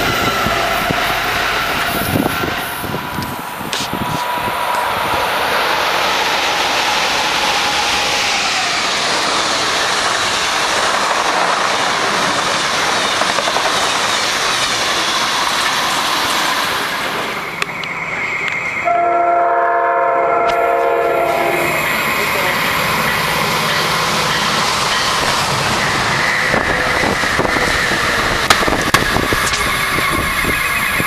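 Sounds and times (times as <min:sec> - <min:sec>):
train passing at speed: 0:00.0 - 0:31.0
train horn: 0:18.8 - 0:21.8.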